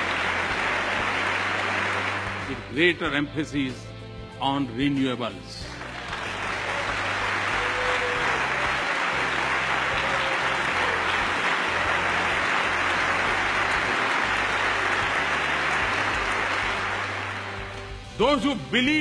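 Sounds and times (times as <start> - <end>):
audience applause: 0.0 - 2.8, 5.7 - 18.0.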